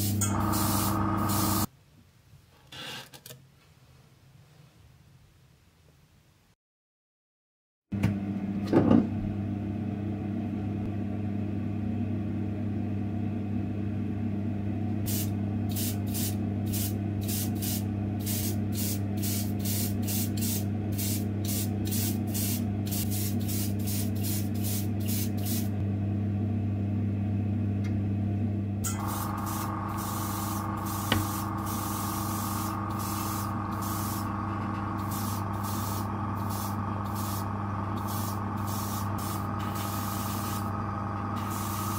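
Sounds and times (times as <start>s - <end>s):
extraction fan humming: 0.0s - 1.7s, 8.0s - 41.9s
paint spraying in short bursts: 0.0s - 1.7s, 15.1s - 25.7s, 28.9s - 34.3s, 35.0s - 40.7s, 41.4s - 41.9s.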